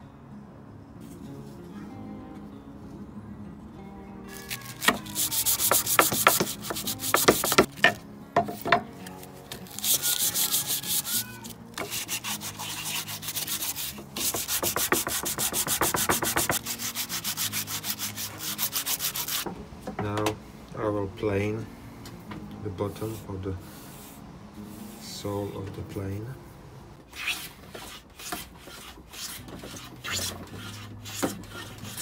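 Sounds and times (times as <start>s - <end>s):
sandpaper scraping wood: 4.4s - 7.8s, 9.6s - 19.4s, 22.9s - 25.0s, 27.1s - 32.0s.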